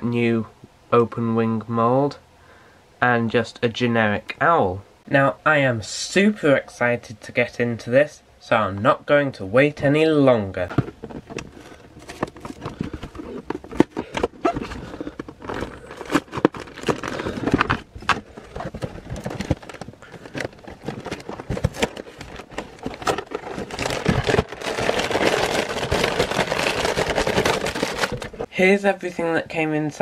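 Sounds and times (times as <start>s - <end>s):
plastic bags crinkling: 10.7s - 28.5s
cardboard box tearing and scraping: 11.7s - 28.5s.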